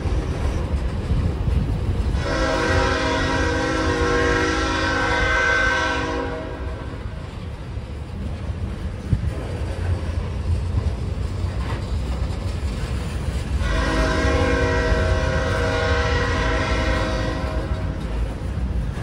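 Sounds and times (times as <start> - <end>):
freight train rumbling past: 0.0 - 19.0
train horn: 2.1 - 7.2, 13.6 - 18.3.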